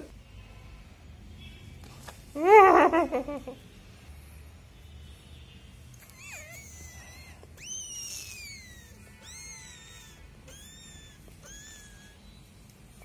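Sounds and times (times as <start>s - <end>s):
cat mewing: 6.1s - 12.2s.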